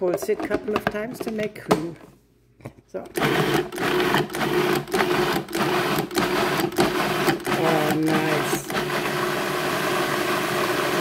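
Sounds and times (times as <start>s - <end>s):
food processor motor pulsing: 3.1s - 11.0s.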